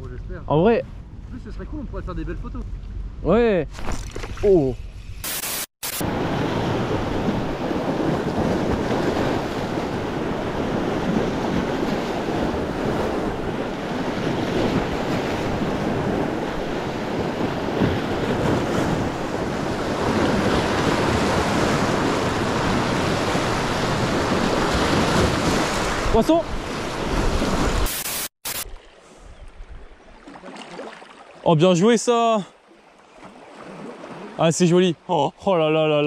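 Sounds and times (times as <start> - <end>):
surf washing over rocks: 6.0 - 28.0
wind buffeting microphone: 6.1 - 27.9.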